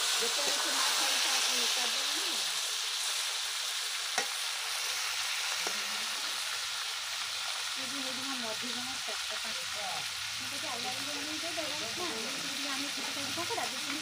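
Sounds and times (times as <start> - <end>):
crab sizzling in hot oil: 0.0 - 14.0
metal spatula tapping pan: 4.2 - 4.4.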